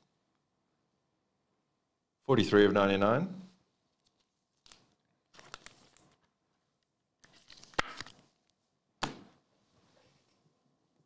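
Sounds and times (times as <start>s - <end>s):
cards rustling and sliding: 4.0s - 6.3s, 7.2s - 8.5s.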